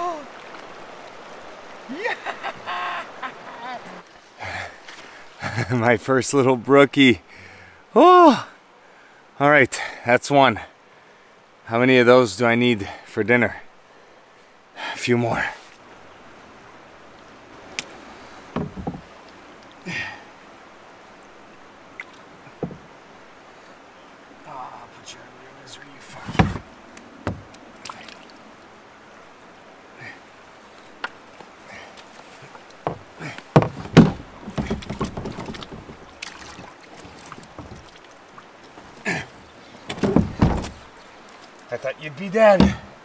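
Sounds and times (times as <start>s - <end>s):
creek water hiss: 0.0s - 43.0s
knocks against a canoe: 18.5s - 19.1s, 22.6s - 22.9s, 26.2s - 28.0s, 32.8s - 38.0s, 38.6s - 40.9s, 42.5s - 43.0s.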